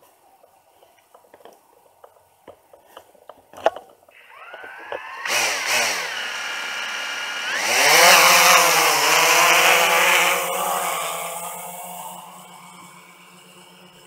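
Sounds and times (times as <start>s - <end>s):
drone propellers whining: 4.1s - 14.0s.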